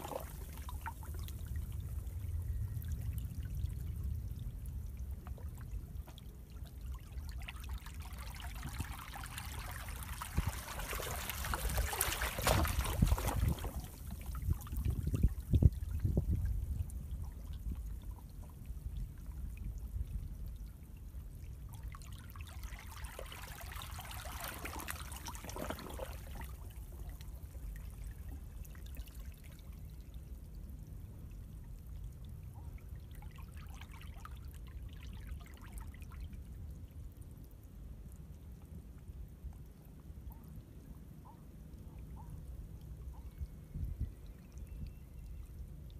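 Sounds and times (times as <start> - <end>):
seawater trickling between rocks: 0.0 - 2.2, 2.8 - 20.1, 21.7 - 30.3
steady low rumble: 0.0 - 7.4.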